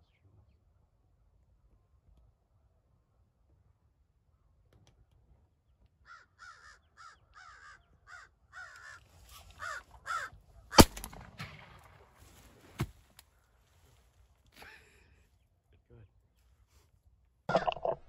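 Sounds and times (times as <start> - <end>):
crow cawing: 6.0 - 10.9
shotgun shots: 10.7 - 12.0.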